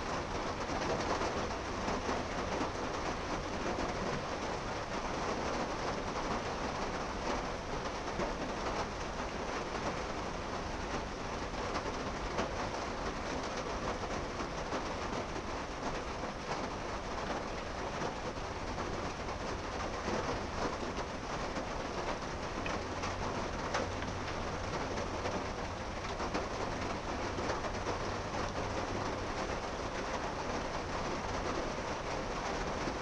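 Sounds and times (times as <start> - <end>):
outdoor rushing hiss and rumble: 0.0 - 33.0.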